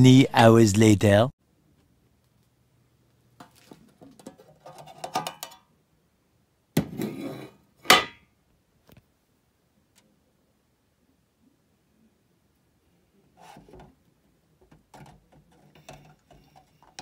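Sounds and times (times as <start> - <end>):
metal can lid clicking and scraping: 4.1 - 5.6.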